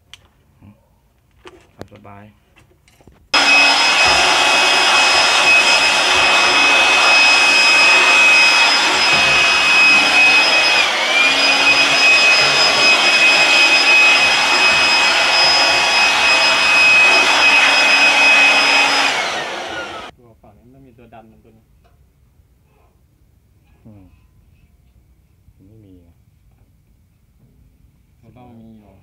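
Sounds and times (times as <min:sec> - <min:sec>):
electric fan motor whining: 0:03.4 - 0:20.1.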